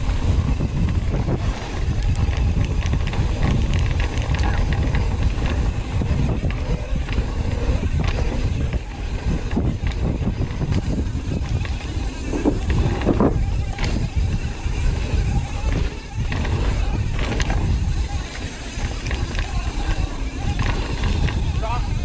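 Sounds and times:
bike chassis rattles: 0.0s - 22.0s
bike tyre roar: 0.0s - 22.0s
wind buffeting microphone: 0.0s - 22.0s.

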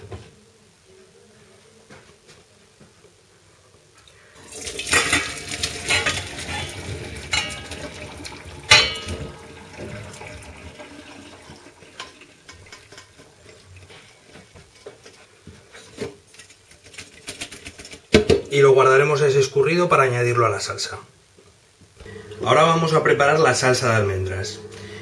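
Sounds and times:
water splashing into colander: 4.4s - 13.9s
metal clanks and clinks: 4.9s - 8.1s, 8.7s - 9.4s.

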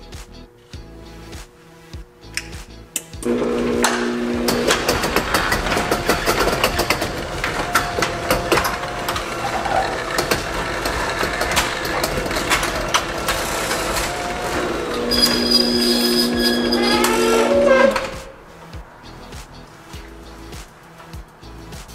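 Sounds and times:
garage door opener motor hum: 3.2s - 18.4s
small clicks and rattles: 4.5s - 14.2s.

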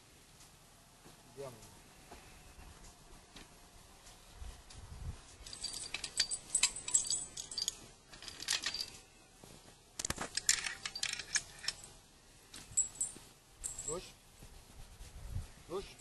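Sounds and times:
metal harness clinking and jingling: 5.4s - 9.1s, 10.0s - 14.1s.

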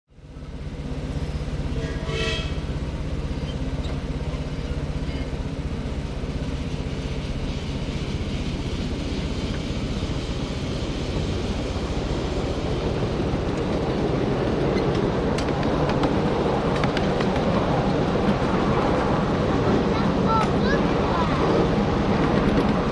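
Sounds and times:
train cars rumbling on rails: 0.1s - 22.9s
wheels clicking on rails: 0.7s - 22.9s
steam train whistle: 1.7s - 2.6s.

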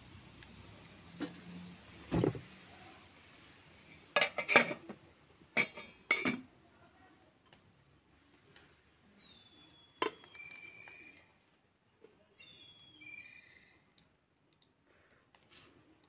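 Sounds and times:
pots and lids clattering: 4.1s - 6.5s.

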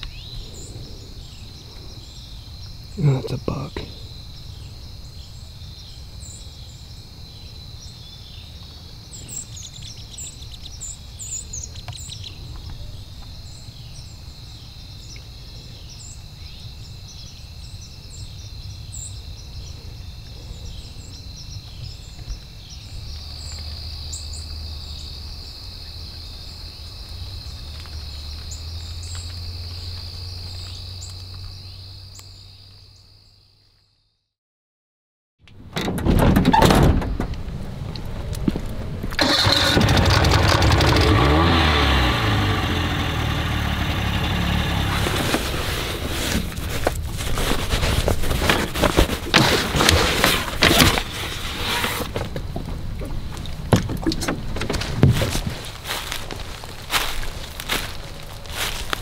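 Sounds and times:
bird chirps: 0.0s - 14.2s.

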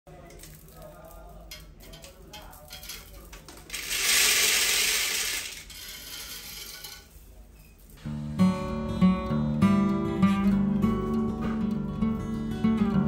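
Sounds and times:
grains rattling on floor: 0.1s - 8.0s
acoustic guitar music: 8.0s - 13.0s.

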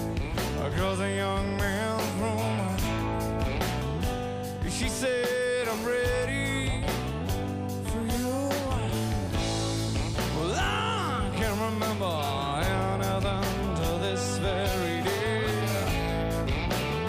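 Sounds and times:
gliding lead guitar line: 0.0s - 17.0s
pop-rock band playing: 0.0s - 17.0s.

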